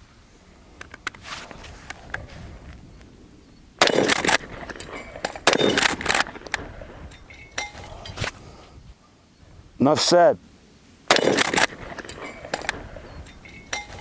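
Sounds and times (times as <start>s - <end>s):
shotgun shots: 3.8s - 7.0s, 11.1s - 13.1s.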